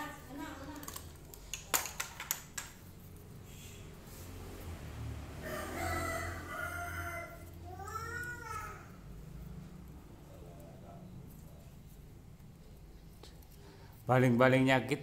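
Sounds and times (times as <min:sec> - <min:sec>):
rooster crowing: 0:05.3 - 0:07.6.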